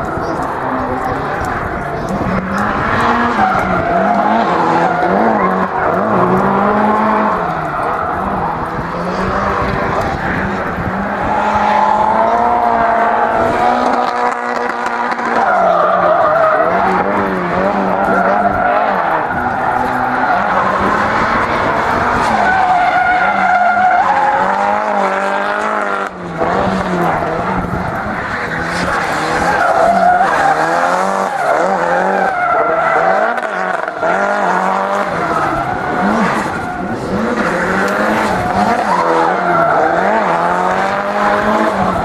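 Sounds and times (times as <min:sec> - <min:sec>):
car engine at high revs: 0:00.0 - 0:42.0.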